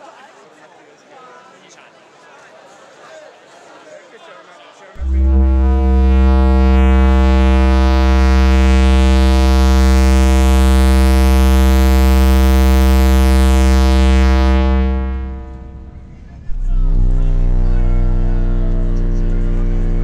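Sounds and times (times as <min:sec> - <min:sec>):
bright high synth sweep: 0:05.0 - 0:20.0
deep synthesizer bass drone: 0:05.0 - 0:20.0.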